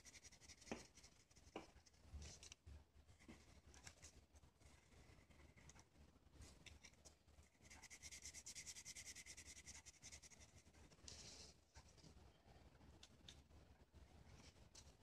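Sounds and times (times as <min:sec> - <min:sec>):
marker scratching on paper: 0:07.6 - 0:10.7.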